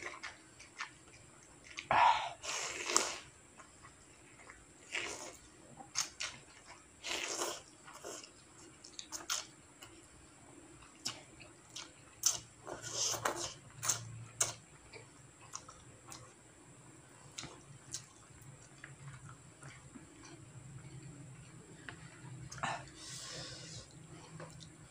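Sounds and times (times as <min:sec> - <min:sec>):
wet chewing: 0:00.0 - 0:01.9, 0:17.3 - 0:24.9.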